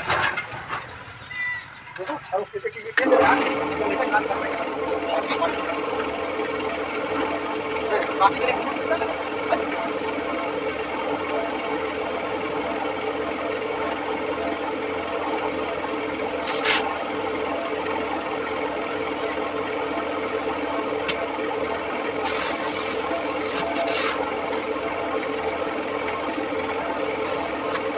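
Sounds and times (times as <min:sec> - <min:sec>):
machine hum: 0:03.0 - 0:27.9
hiss bursts: 0:16.4 - 0:17.0, 0:22.2 - 0:24.2.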